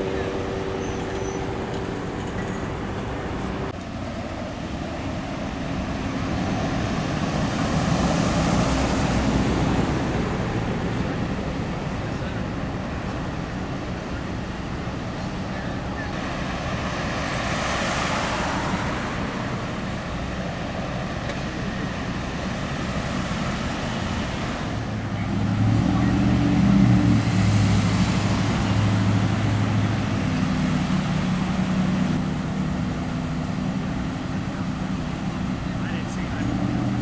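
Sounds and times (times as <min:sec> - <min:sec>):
heavy engine hum: 0:00.0 - 0:37.0
road traffic tyre hiss: 0:00.0 - 0:37.0.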